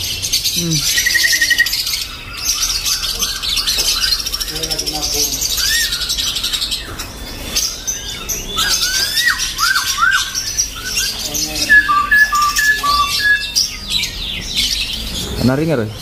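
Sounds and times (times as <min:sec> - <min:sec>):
songbirds chirping and whistling: 0:00.0 - 0:16.0
two-pitched bird whistle: 0:11.7 - 0:13.5.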